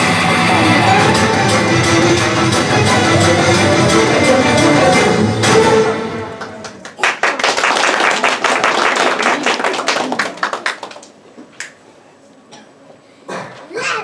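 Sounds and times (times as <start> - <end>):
audience applauding: 6.2 - 11.2.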